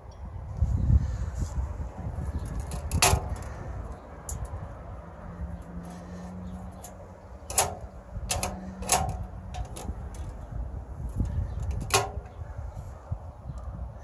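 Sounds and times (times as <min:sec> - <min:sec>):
metallic clanks of steel sheet: 0:02.6 - 0:03.5, 0:06.8 - 0:10.3, 0:11.6 - 0:12.4.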